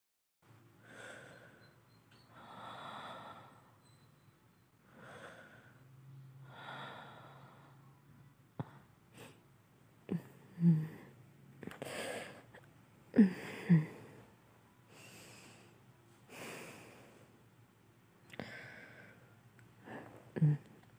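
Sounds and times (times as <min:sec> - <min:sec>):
person breathing slowly and deeply: 0:00.8 - 0:04.2, 0:04.8 - 0:08.0, 0:18.3 - 0:20.6.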